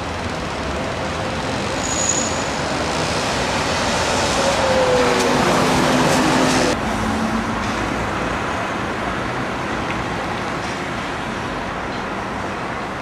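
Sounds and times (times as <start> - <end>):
city traffic rumble and hiss: 0.0 - 13.0.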